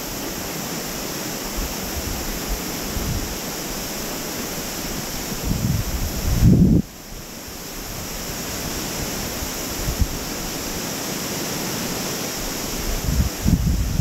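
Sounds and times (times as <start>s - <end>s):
river rushing: 0.0s - 14.0s
wind buffeting microphone: 1.6s - 3.4s, 5.1s - 6.9s, 7.8s - 10.6s, 12.6s - 14.0s.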